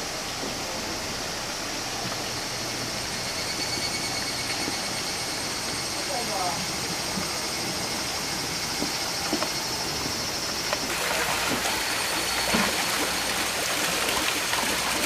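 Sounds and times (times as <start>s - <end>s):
small waterfall splashing: 10.5s - 15.0s.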